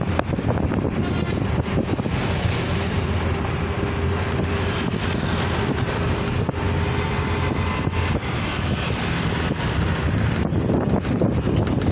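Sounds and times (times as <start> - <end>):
vehicle road and engine noise: 0.0 - 11.9
wind rushing past open window: 0.0 - 11.9.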